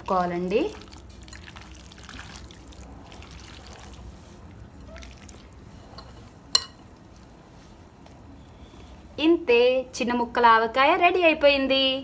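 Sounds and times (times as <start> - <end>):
hand squelching wet food: 0.0 - 6.0.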